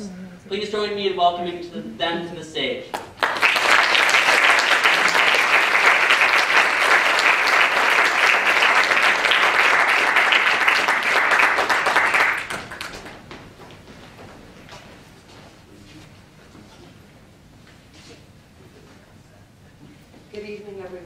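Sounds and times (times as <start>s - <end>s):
audience applauding: 3.0s - 13.3s.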